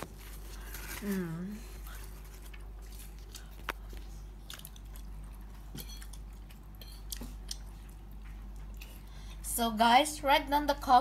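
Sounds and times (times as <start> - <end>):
person chewing pizza: 0.0 - 9.4.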